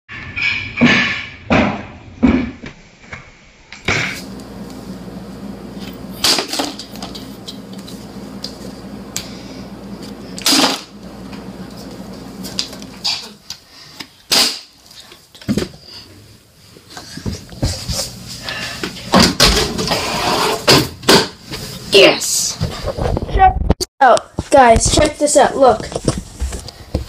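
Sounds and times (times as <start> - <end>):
low steady hum: 4.2 - 13.4.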